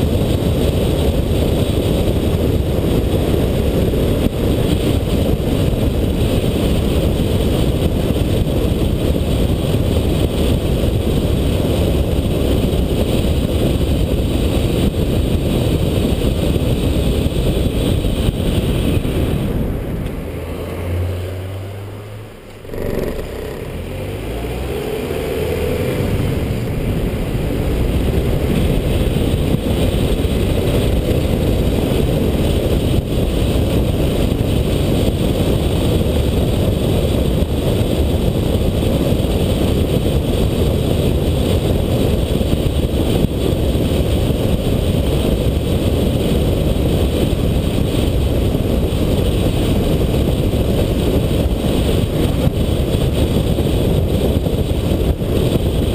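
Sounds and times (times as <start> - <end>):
vehicle engine accelerating: 0.0 - 44.1
tyre and wind noise: 0.0 - 55.9.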